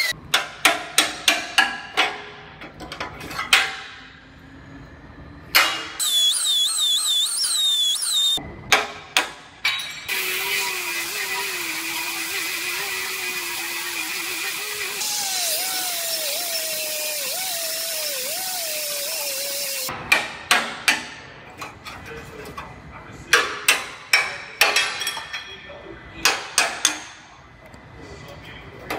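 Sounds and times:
pneumatic cut-off wheel cutting steel: 0:05.7 - 0:08.4, 0:10.1 - 0:19.9.

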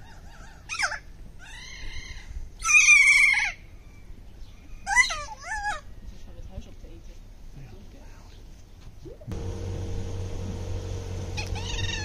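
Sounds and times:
bird calling: 0:11.2 - 0:12.0.

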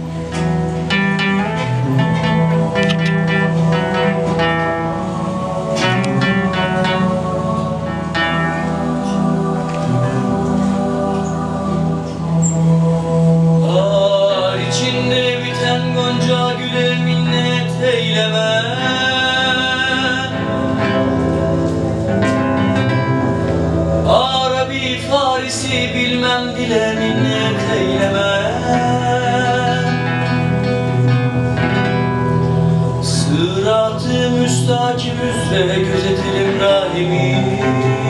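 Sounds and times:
strummed acoustic guitars: 0:00.0 - 0:38.0
young man singing: 0:02.6 - 0:21.2, 0:24.0 - 0:30.8, 0:33.0 - 0:38.0.

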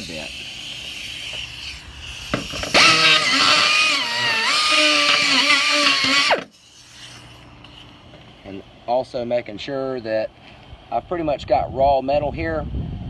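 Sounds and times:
rotary grinder whining: 0:00.0 - 0:07.5.

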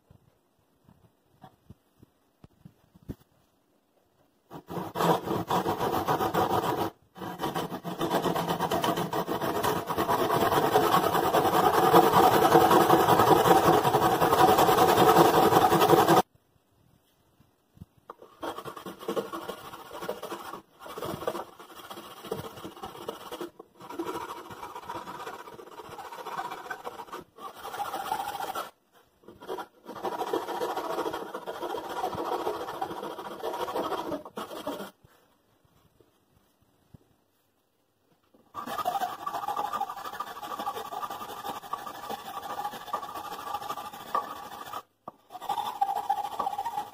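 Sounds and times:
hand saw sawing wood: 0:04.5 - 0:16.2, 0:18.1 - 0:35.0, 0:38.5 - 0:46.9.

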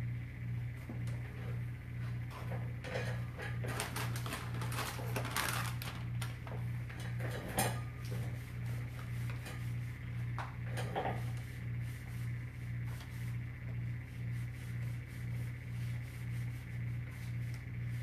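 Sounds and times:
low hum: 0:00.0 - 0:18.0
plastic pack rustling: 0:03.6 - 0:06.5
wipes rubbing on tile floor: 0:11.5 - 0:13.4, 0:14.1 - 0:18.0.

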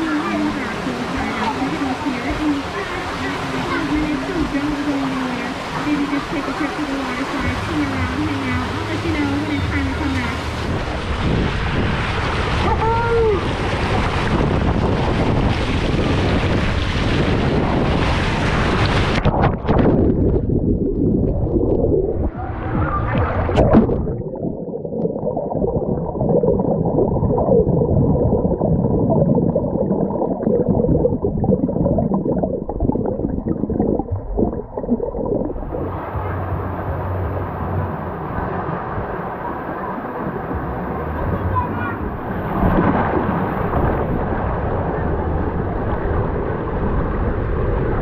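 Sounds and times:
water rushing down a waterslide: 0:00.0 - 0:24.2, 0:25.6 - 0:48.0
underwater churning and bubbles: 0:00.0 - 0:48.0
splashdown into pool: 0:42.4 - 0:44.8.

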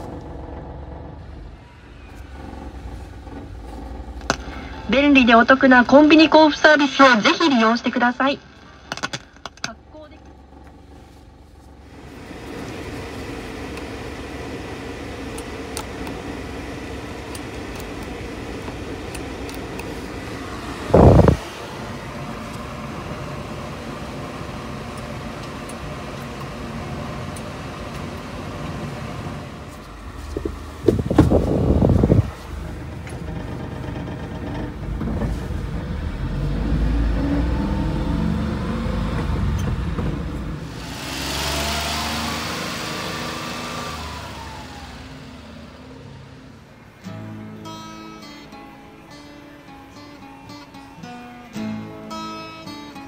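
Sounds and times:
mini truck engine running: 0:00.0 - 0:07.6, 0:08.4 - 0:53.0.

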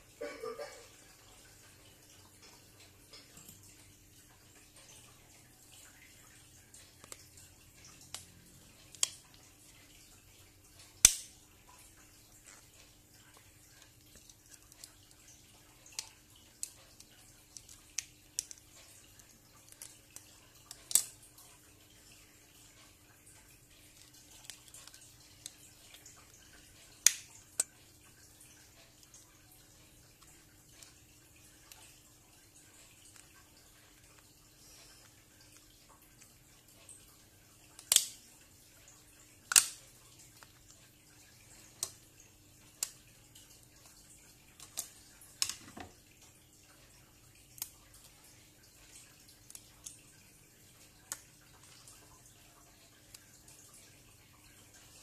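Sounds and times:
faint steady hum: 0:00.0 - 0:55.0
sharp plastic clicks and snaps: 0:10.8 - 0:11.4, 0:19.2 - 0:21.2, 0:37.8 - 0:38.2, 0:39.5 - 0:39.8.

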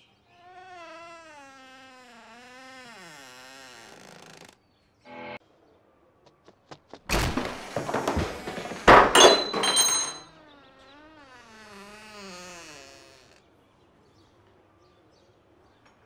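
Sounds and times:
door hinges creaking: 0:00.4 - 0:04.6, 0:07.1 - 0:10.2, 0:10.9 - 0:13.4
door banging: 0:07.1 - 0:10.2.

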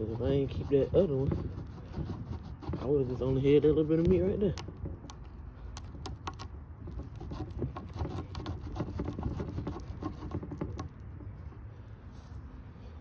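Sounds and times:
sleeve brushing microphone: 0:00.0 - 0:04.3.

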